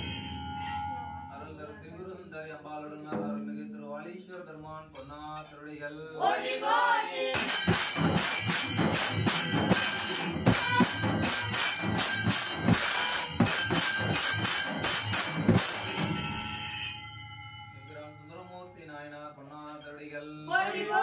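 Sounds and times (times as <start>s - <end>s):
clashing hand cymbals: 0.0s - 1.4s, 7.4s - 18.1s
stick-beaten drums: 3.1s - 3.8s, 7.3s - 17.1s.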